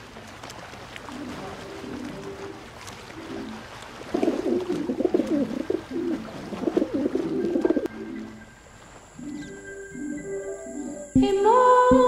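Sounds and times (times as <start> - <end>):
soft music notes: 1.0 - 12.0
pigeons cooing: 3.2 - 8.4.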